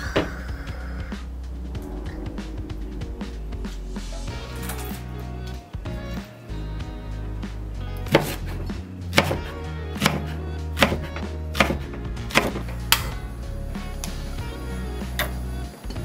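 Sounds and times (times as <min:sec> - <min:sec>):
background music: 0:00.0 - 0:16.0
knife chopping on plastic cutting board: 0:08.1 - 0:08.4, 0:09.1 - 0:12.6.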